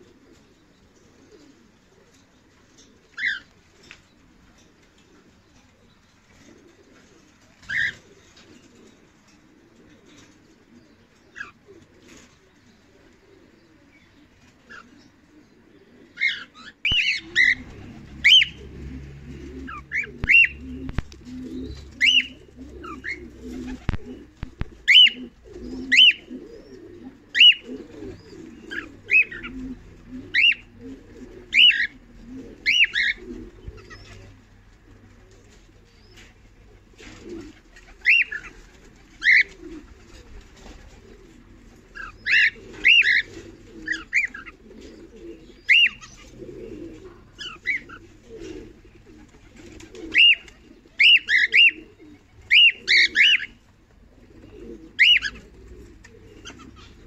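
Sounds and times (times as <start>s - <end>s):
cockatiels chirping: 24.8s - 25.2s, 45.6s - 46.3s.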